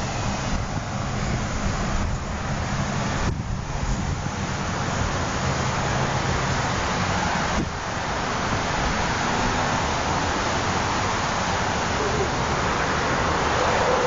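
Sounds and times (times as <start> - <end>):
wind on microphone: 0.0 - 5.2
street traffic: 0.0 - 14.0.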